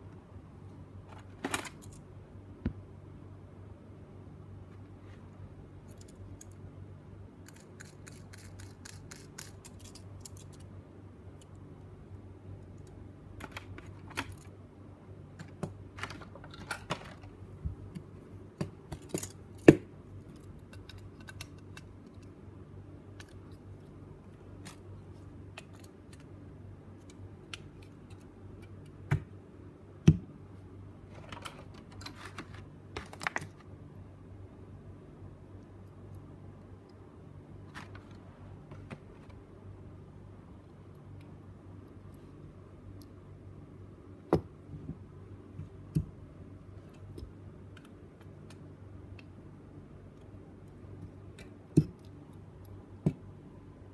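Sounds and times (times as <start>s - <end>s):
low steady hum: 0.0s - 53.9s
plastic parts clicking and tapping: 12.6s - 14.5s, 15.4s - 22.3s.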